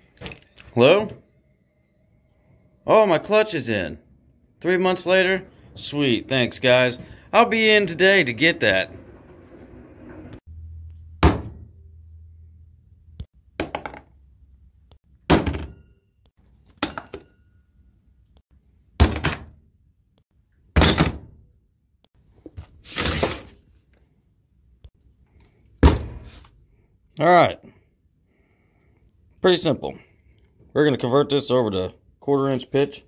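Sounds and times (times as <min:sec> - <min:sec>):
objects thunking on workbench: 0:13.6 - 0:14.1, 0:15.3 - 0:15.8.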